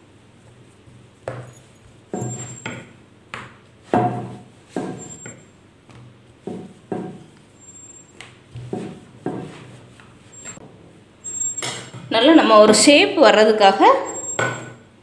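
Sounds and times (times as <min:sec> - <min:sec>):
rolling pin on wooden board: 0:00.5 - 0:07.5, 0:08.2 - 0:10.6.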